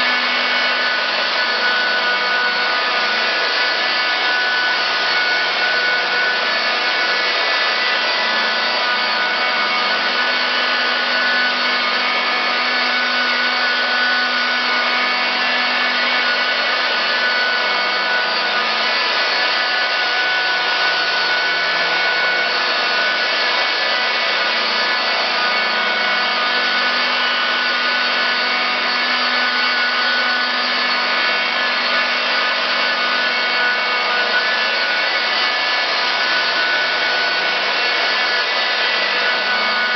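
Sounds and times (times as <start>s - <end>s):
polisher whining: 0.0s - 39.9s.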